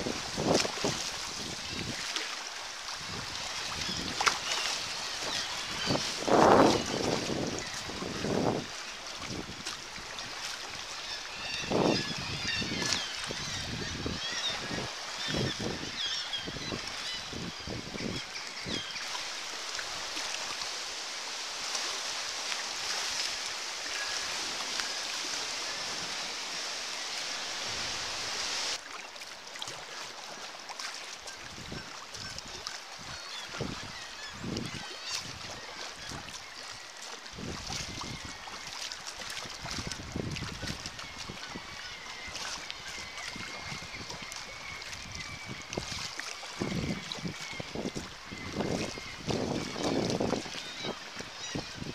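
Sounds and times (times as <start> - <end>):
water splashing against kayak: 0.0 - 51.9
seabirds calling: 3.1 - 9.3, 9.9 - 21.3, 31.3 - 51.9.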